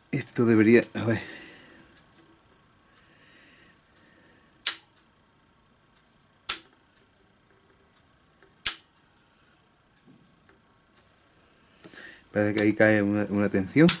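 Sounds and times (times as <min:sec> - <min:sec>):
sharp single clicks: 0:04.6 - 0:05.1, 0:06.4 - 0:06.8, 0:08.6 - 0:09.0.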